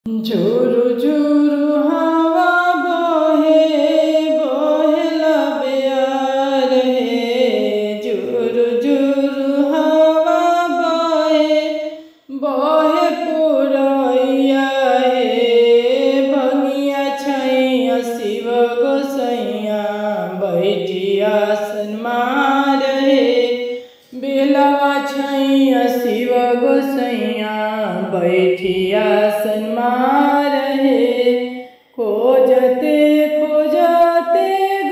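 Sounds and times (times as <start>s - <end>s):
woman singing: 0.0s - 34.9s.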